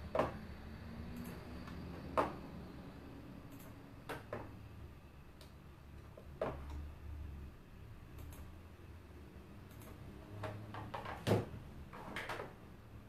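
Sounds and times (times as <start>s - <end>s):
computer mouse clicks: 3.5s - 4.4s, 8.1s - 8.5s, 9.6s - 11.1s.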